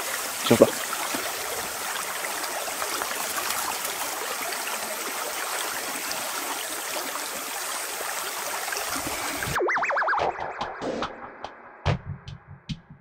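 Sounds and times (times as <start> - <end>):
creek trickling: 0.0 - 9.6.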